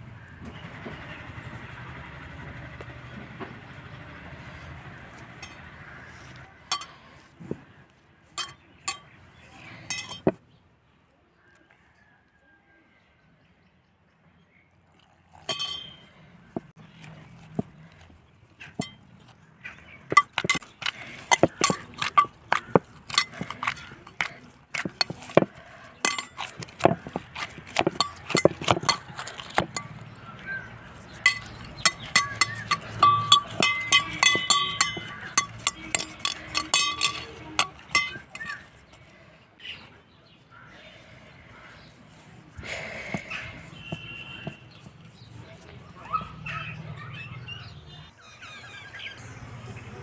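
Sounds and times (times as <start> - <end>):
metal mixing bowl clinking: 5.4 - 5.7, 6.7 - 7.0, 8.4 - 9.2, 9.8 - 10.4, 15.3 - 16.1, 18.7 - 19.0, 20.1 - 30.2, 31.0 - 38.7.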